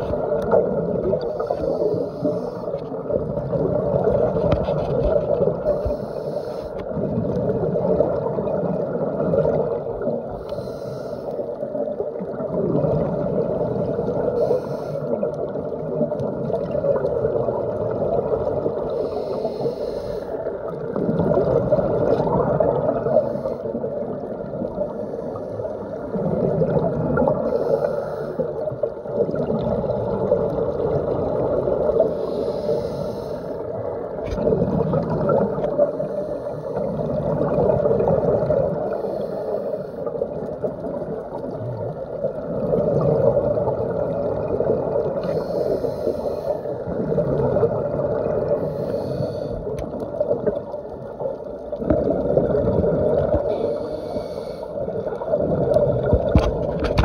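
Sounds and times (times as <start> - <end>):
muffled scuba regulator breathing: 0.0 - 3.1, 4.4 - 7.1, 10.0 - 11.9, 14.1 - 15.6, 18.7 - 22.2, 22.8 - 24.2, 24.8 - 26.4, 27.2 - 28.9, 31.9 - 34.0, 35.5 - 37.3, 38.6 - 40.4, 45.1 - 50.3, 53.1 - 55.3
exhaled bubbles underwater: 0.0 - 57.0.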